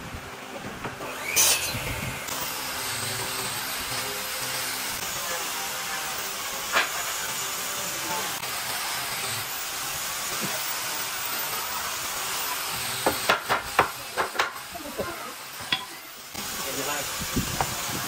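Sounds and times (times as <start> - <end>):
steady hiss: 6.2 - 18.0.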